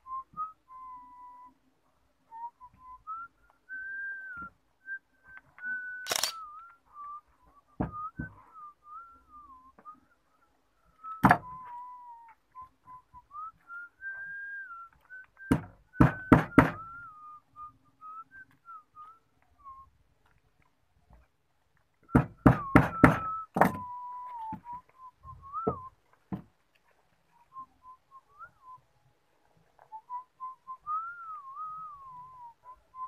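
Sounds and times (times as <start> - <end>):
person whistling a slow tune: 0.0 - 1.6, 2.3 - 20.0, 22.0 - 26.0, 27.3 - 28.8, 29.8 - 33.0.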